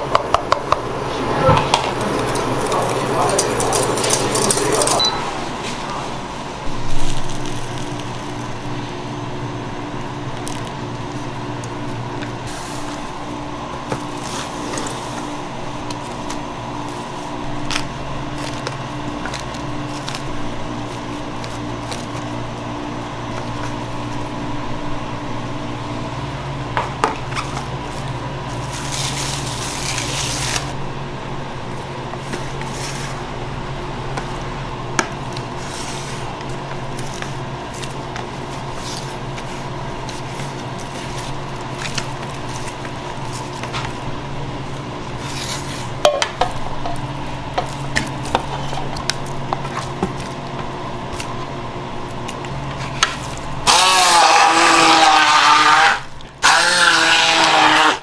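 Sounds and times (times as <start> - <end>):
steady low hum: 0.0 - 54.4
cling film crinkling: 1.9 - 5.0, 6.8 - 8.9, 27.4 - 30.8, 35.1 - 57.9
jelly squelching: 6.7 - 9.0, 10.0 - 24.4, 31.6 - 57.9.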